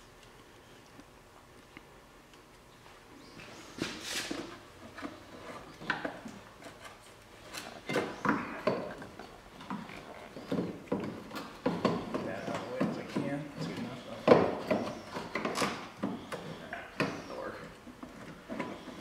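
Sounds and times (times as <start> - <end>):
engine parts clunking and scraping: 3.4 - 19.0.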